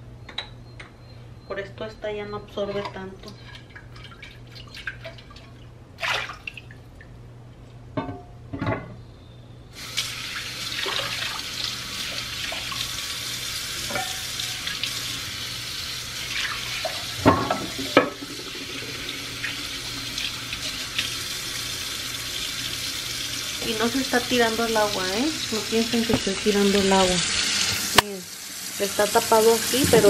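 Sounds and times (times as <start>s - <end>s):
clay pots clunking: 7.9s - 9.0s, 13.9s - 14.3s, 16.8s - 18.2s
faucet running into sink: 9.8s - 30.0s.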